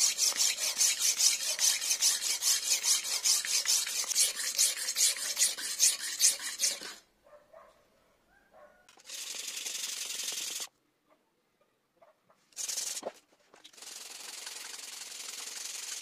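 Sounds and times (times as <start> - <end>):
knife scraping on whetstone: 0.0 - 7.0.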